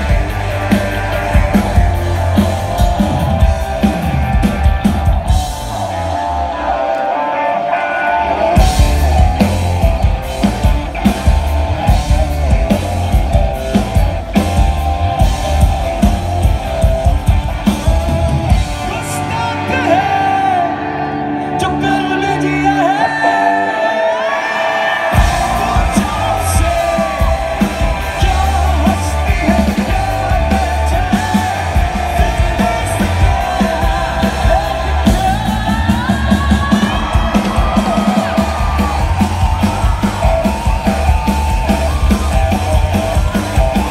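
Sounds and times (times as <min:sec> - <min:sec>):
bass guitar: 0:00.0 - 0:23.7, 0:25.0 - 0:43.9
drums: 0:00.0 - 0:43.9
electric guitars: 0:00.0 - 0:43.9
person singing lead vocal: 0:17.8 - 0:43.9.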